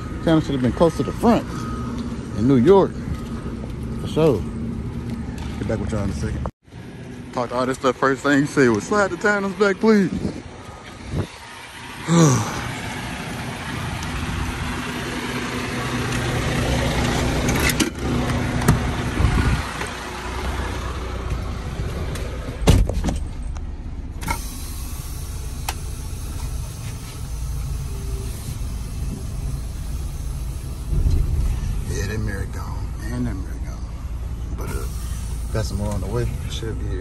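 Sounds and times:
diesel truck engine idling: 0.0 - 5.7, 7.1 - 22.7, 23.3 - 37.0
truck cab door thump: 22.6 - 23.2.

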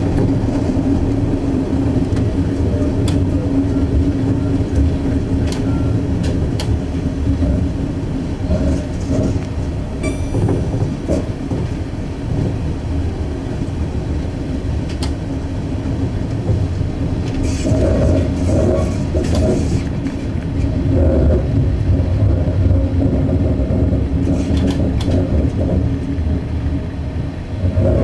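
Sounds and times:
train rumble and hum: 0.0 - 28.0
wheels clicking on track: 0.0 - 28.0.

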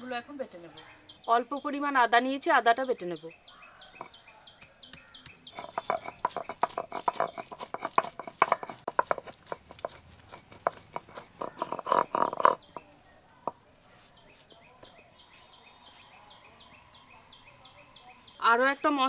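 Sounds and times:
grinding stone scraping and knocking: 5.2 - 13.6.

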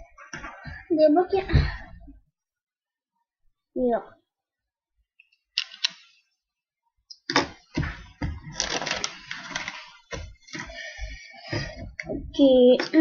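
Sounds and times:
plastic bricks clattering: 8.5 - 10.0.

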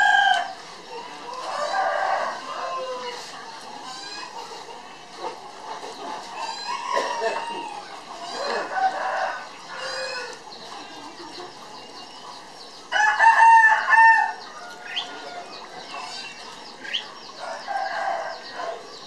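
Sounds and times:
small birds chirping: 0.0 - 19.0
mid-pitched bird calls: 13.8 - 19.0.

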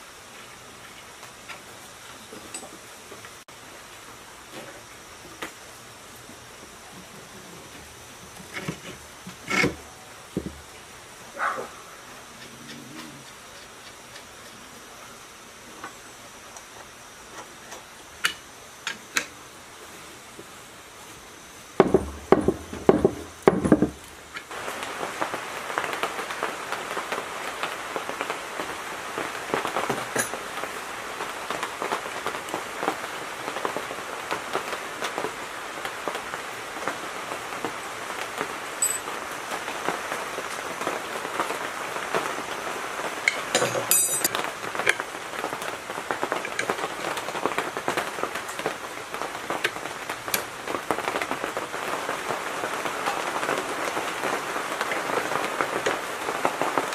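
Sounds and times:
small irregular ticks: 12.1 - 14.8
metal tools clicking: 38.8 - 39.1, 43.6 - 44.3.

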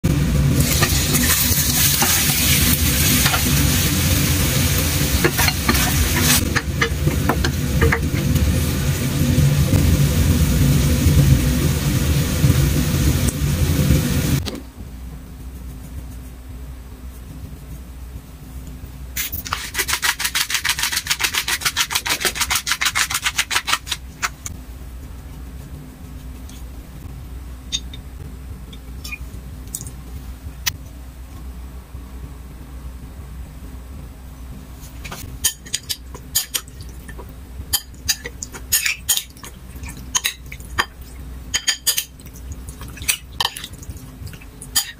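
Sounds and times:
food sizzling in a frying pan: 0.5 - 14.4
spatula scraping a pan: 0.6 - 8.3, 19.2 - 24.5
pepper shaker rattling: 19.2 - 24.5.

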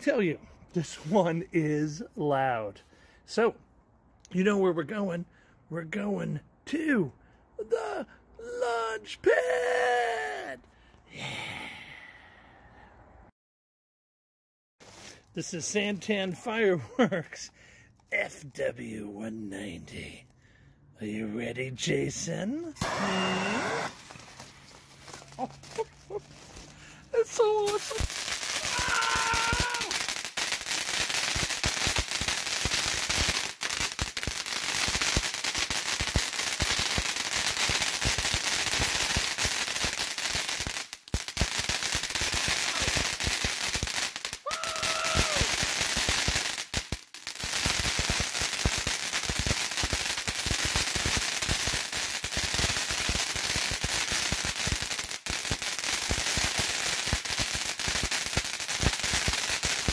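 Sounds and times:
fountain firework spark hiss: 22.8 - 25.9, 27.2 - 59.9
rapid crackling pops: 27.3 - 59.9.

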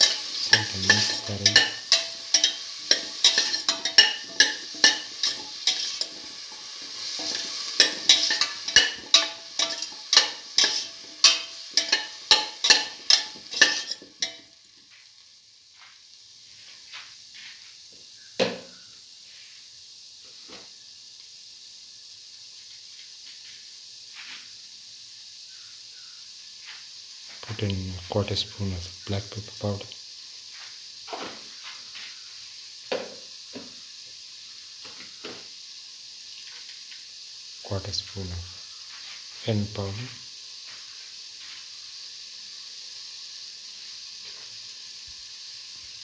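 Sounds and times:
spoon scraping metal pan: 0.0 - 14.4
food sizzling in oil: 0.0 - 46.0.

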